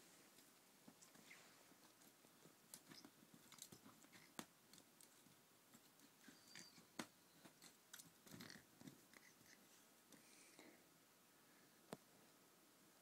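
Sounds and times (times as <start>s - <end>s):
soft rustling of bedding: 0.0s - 10.4s.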